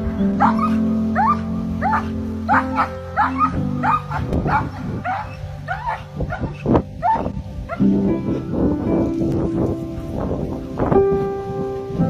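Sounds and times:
background music: 0.0s - 12.0s
dog barking: 0.4s - 7.8s.

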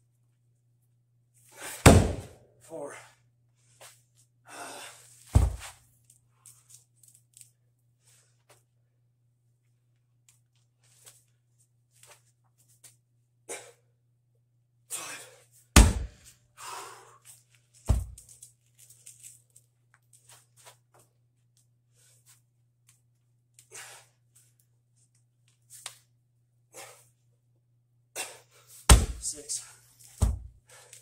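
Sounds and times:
heavy stone thudding on floor: 1.8s - 2.4s, 5.3s - 5.7s, 15.8s - 16.2s, 28.9s - 29.3s, 30.2s - 30.5s.

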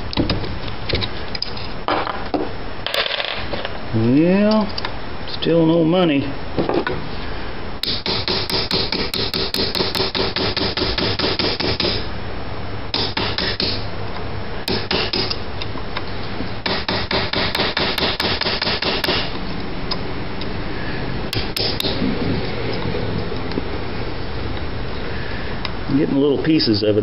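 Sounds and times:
hammer tapping steel punch: 7.8s - 12.0s, 14.7s - 15.4s, 21.3s - 22.0s.

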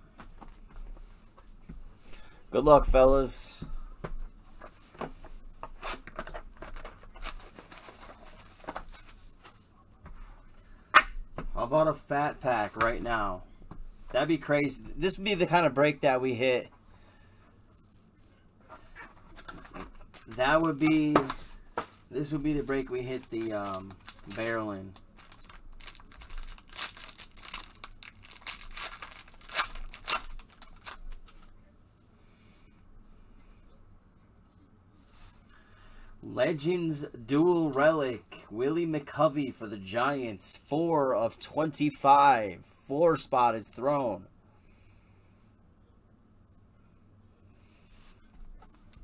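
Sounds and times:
plastic shrink wrap crinkling: 6.0s - 9.5s, 22.2s - 31.5s.

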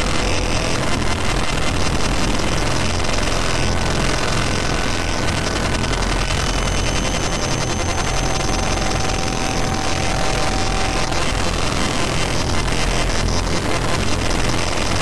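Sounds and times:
distorted noise wall: 0.0s - 15.0s
low rumble: 1.6s - 14.5s
thin whistling tones: 6.3s - 12.3s.

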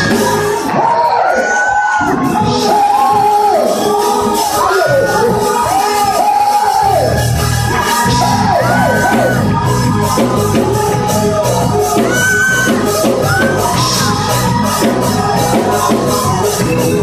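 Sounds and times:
drum kit driving beat: 0.0s - 1.0s, 2.0s - 17.0s
voices shouting and singing: 0.0s - 17.0s.

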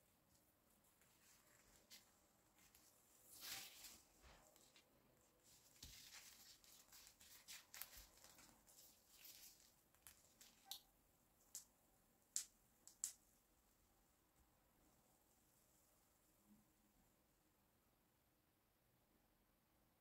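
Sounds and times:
plastic glove crinkling: 1.1s - 10.9s.

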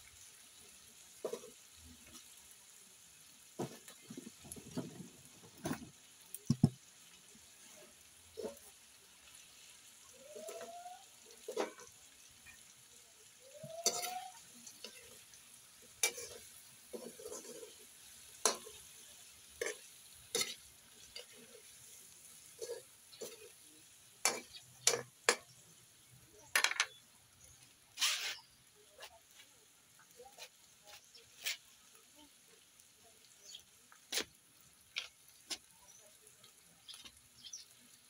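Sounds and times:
food sizzling in hot oil: 0.0s - 38.0s
metal spatula scraping a wok: 11.4s - 12.6s, 13.5s - 23.6s, 24.2s - 25.6s, 28.0s - 29.1s.

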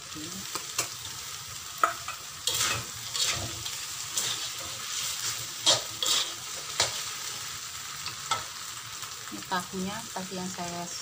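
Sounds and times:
frying sizzle: 0.0s - 11.0s
spatula scraping metal wok: 1.8s - 8.4s.

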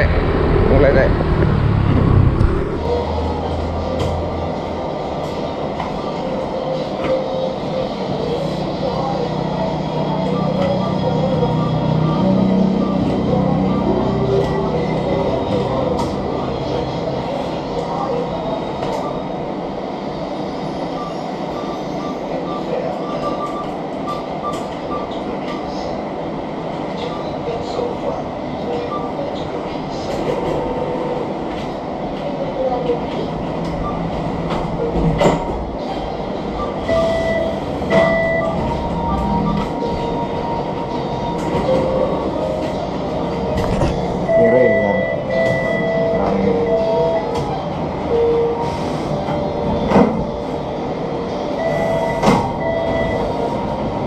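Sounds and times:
steady rushing noise: 0.0s - 5.9s
keypad beeps: 36.6s - 39.8s, 51.6s - 53.4s.

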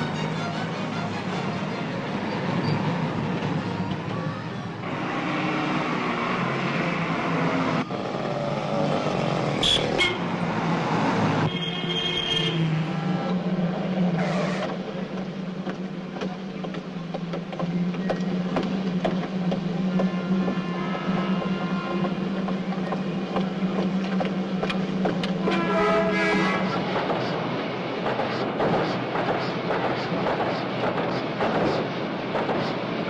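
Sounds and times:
vehicles and motorbikes passing: 0.0s - 17.0s.

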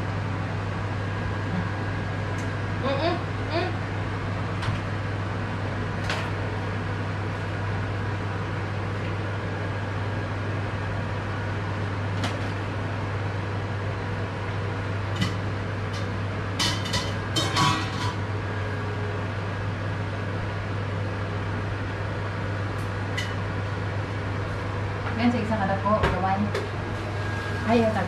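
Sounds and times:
low machine hum: 0.0s - 28.0s.

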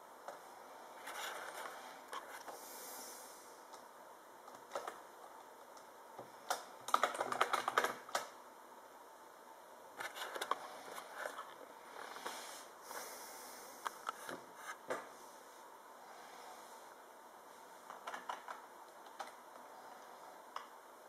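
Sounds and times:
laptop keyboard typing: 4.4s - 5.1s, 6.4s - 8.4s, 17.9s - 19.4s.

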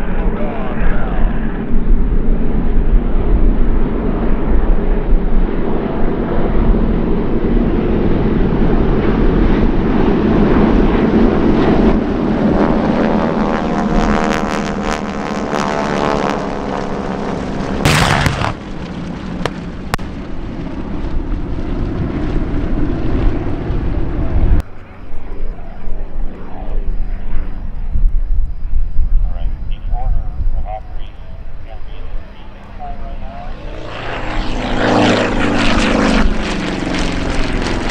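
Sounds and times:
jets passing by: 0.0s - 37.9s
propeller planes droning overhead: 0.0s - 37.9s
pyrotechnic explosion blast: 17.8s - 24.6s
sharp pops: 17.9s - 18.8s.

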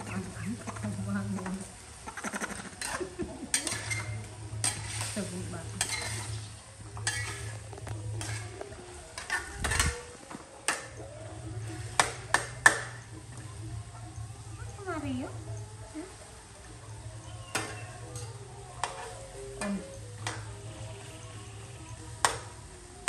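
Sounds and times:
sizzling in hot pan: 0.0s - 11.0s
metal spatula scraping wok: 0.0s - 13.1s, 17.1s - 22.6s.

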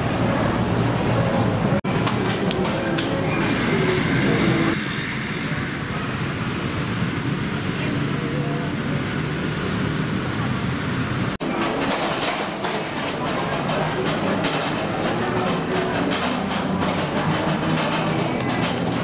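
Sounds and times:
steady traffic noise: 0.0s - 19.0s
faint indistinct voices: 11.4s - 19.0s.

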